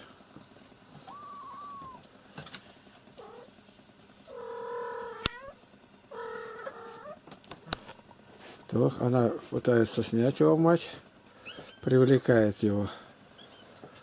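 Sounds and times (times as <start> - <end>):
cat meowing: 1.0 - 2.0.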